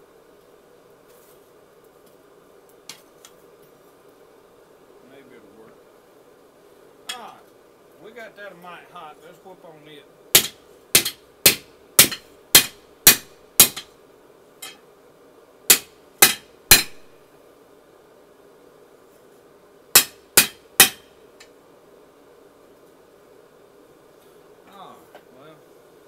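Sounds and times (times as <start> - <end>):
hammer striking steel on anvil: 10.4 - 13.9, 15.7 - 17.1, 20.0 - 21.1.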